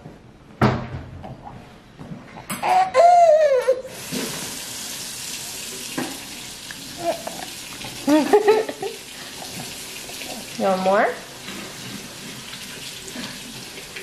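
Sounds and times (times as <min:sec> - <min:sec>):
faint baby noises: 0:02.5 - 0:03.9, 0:07.0 - 0:07.6
baby squealing: 0:02.6 - 0:03.9.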